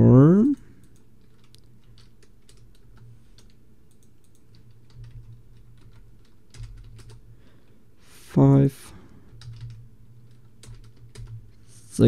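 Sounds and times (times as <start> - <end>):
faint low hum: 0.0 - 12.0
keyboard typing: 0.8 - 7.3, 9.3 - 11.6.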